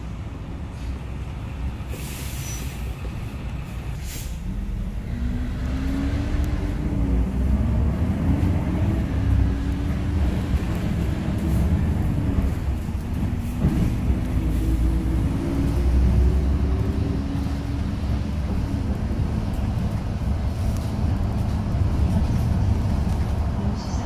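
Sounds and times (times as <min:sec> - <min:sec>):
bus engine accelerating: 0:00.0 - 0:24.0.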